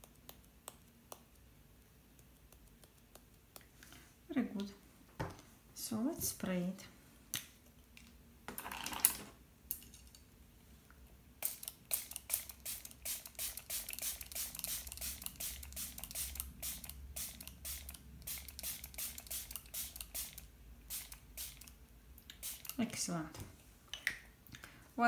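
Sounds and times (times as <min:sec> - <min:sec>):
spray bottle squirts: 0:11.4 - 0:21.7, 0:22.4 - 0:22.8.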